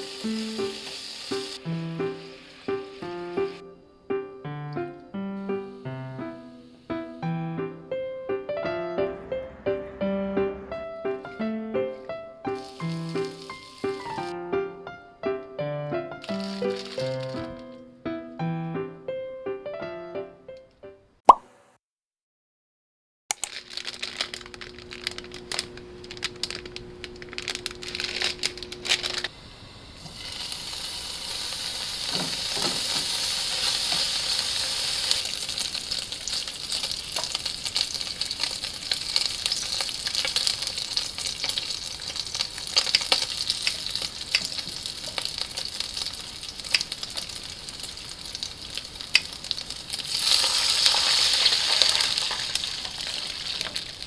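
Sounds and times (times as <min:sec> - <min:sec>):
meat sizzling in a frying pan: 0:00.0 - 0:03.6, 0:12.5 - 0:14.3, 0:16.2 - 0:17.6, 0:24.4 - 0:54.0
water poured into hot pan: 0:00.0 - 0:03.6, 0:12.6 - 0:14.2, 0:16.2 - 0:17.6, 0:29.8 - 0:54.0
plastic packet crinkling: 0:12.6 - 0:14.2, 0:16.2 - 0:17.8, 0:23.3 - 0:29.3, 0:31.9 - 0:54.0.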